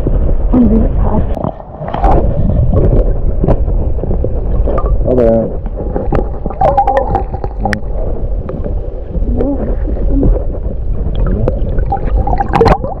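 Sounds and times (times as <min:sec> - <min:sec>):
muffled underwater river rushing: 0:00.0 - 0:13.0
wavering muffled tones: 0:04.6 - 0:13.0.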